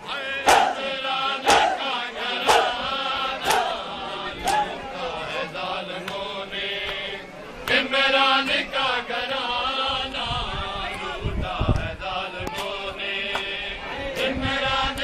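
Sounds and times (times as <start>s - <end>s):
crowd of men chanting: 0.0s - 15.0s
synchronised chest-beating strikes: 0.4s - 4.8s.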